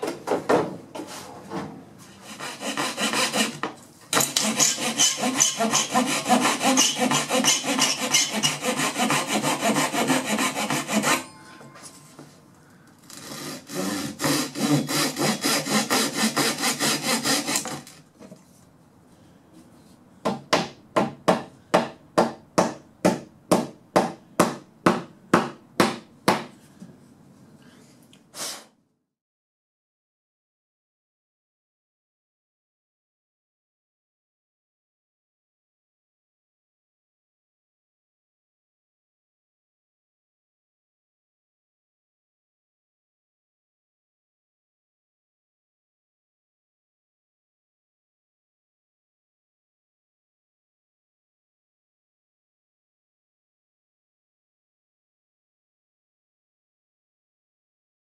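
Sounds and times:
hand saw cutting wood: 0:02.2 - 0:11.3, 0:13.1 - 0:18.0.

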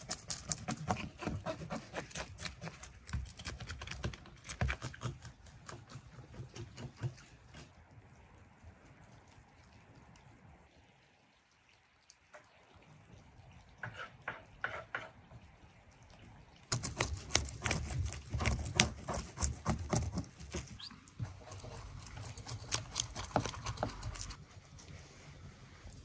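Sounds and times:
knife scraping fish scales: 0:00.0 - 0:07.6, 0:16.7 - 0:24.4.

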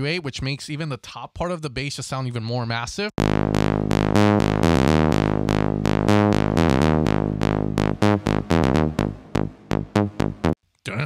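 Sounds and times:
synth bass line: 0:03.2 - 0:10.6.

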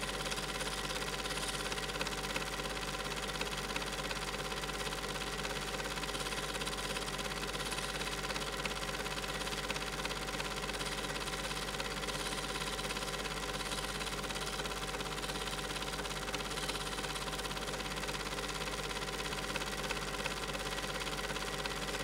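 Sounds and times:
film projector whirring and clattering: 0:00.0 - 0:22.0.

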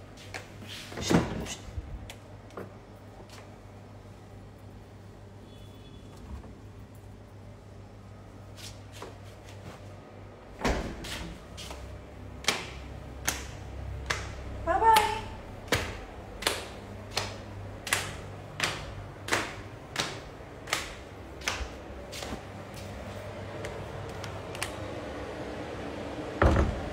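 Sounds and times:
footsteps on hard floor: 0:21.4 - 0:24.2.

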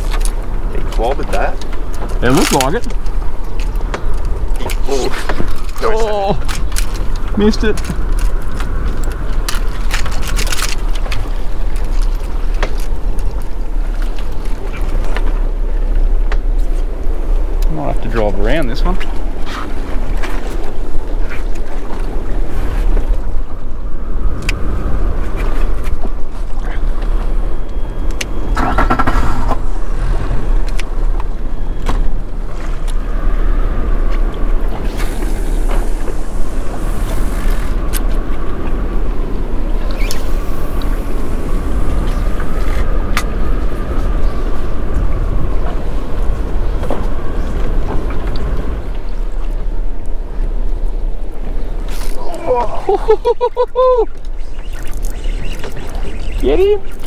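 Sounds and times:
water noise: 0:00.0 - 0:57.0
wind buffeting microphone: 0:00.0 - 0:57.0
brief rattle: 0:28.5 - 0:30.9.

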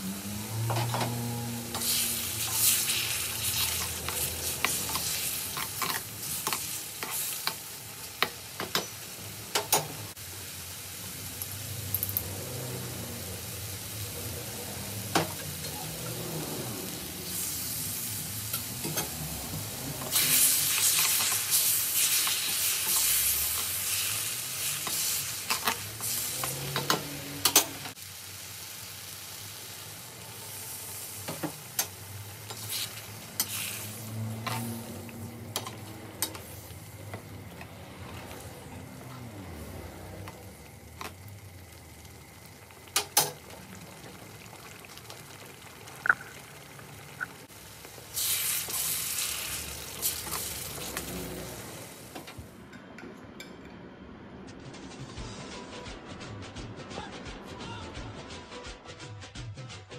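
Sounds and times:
curry sizzling in a pan: 0:00.0 - 0:52.2
metal spoon scraping a pan: 0:32.5 - 0:34.9.

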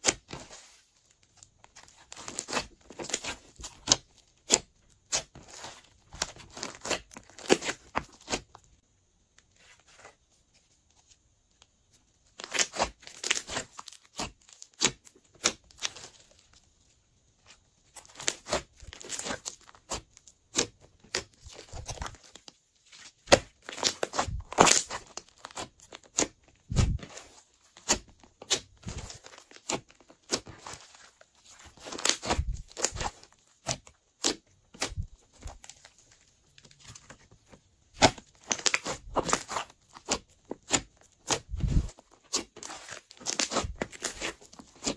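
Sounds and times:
slime popping and crackling: 0:37.9 - 0:44.9.

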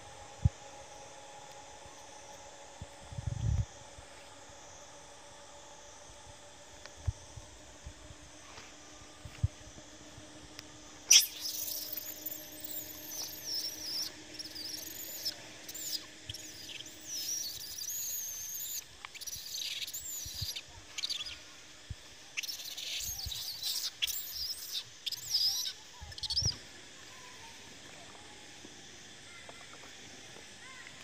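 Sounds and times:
baby monkey squealing: 0:11.1 - 0:21.4, 0:22.4 - 0:26.6.

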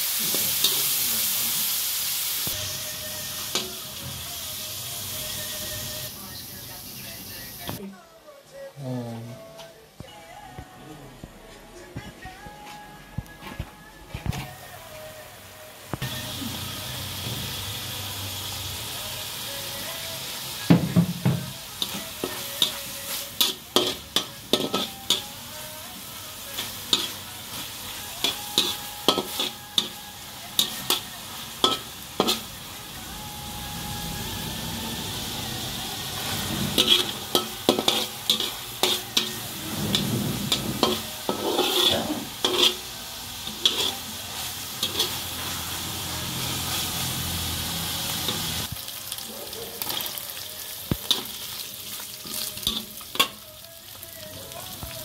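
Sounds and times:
food sizzling in a wok: 0:00.0 - 0:07.8, 0:14.4 - 0:55.0
spatula scraping and clacking pan: 0:36.6 - 0:42.8, 0:43.4 - 0:44.0, 0:44.8 - 0:45.2.

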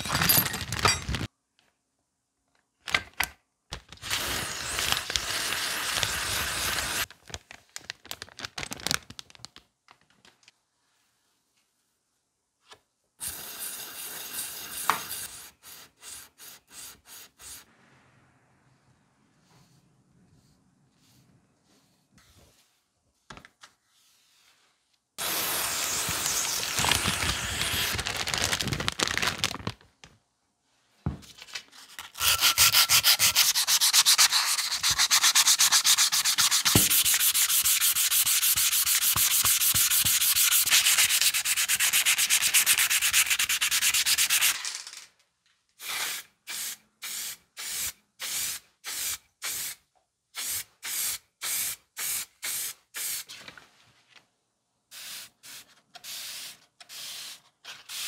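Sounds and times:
plastic zip bag rustle: 0:26.4 - 0:29.9
sandpaper sanding strokes: 0:32.2 - 0:44.5.

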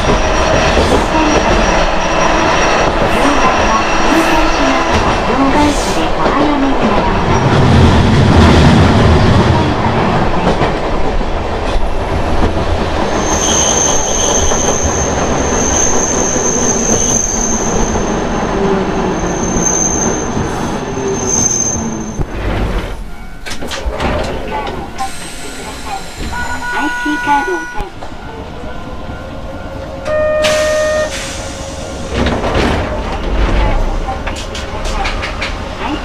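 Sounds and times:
high-pitched wheel squeal: 0:13.2 - 0:18.2, 0:19.0 - 0:22.2.

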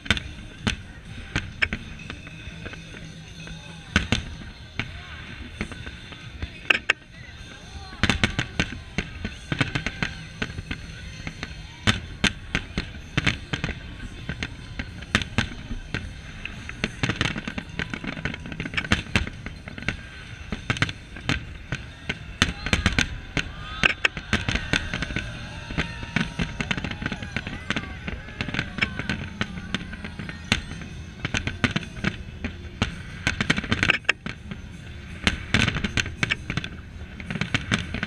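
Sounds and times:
firework shells bursting: 0:08.0 - 0:34.5, 0:35.1 - 0:38.0.

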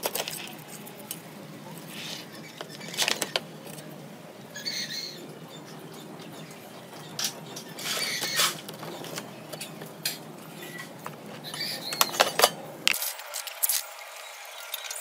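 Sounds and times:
wiring rustling: 0:00.0 - 0:13.9.

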